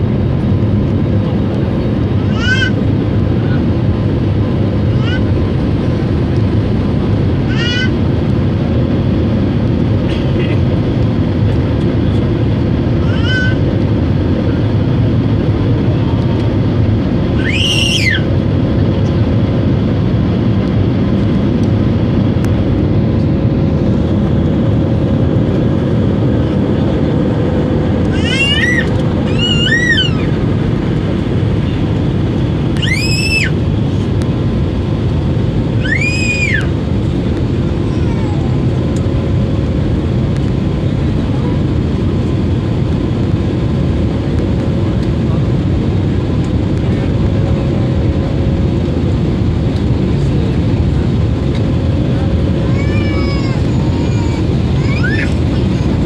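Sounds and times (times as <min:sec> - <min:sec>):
jet engines roaring in cabin: 0:00.0 - 0:56.0
short high rising and falling cries: 0:28.1 - 0:30.4, 0:32.7 - 0:33.6, 0:35.7 - 0:36.8.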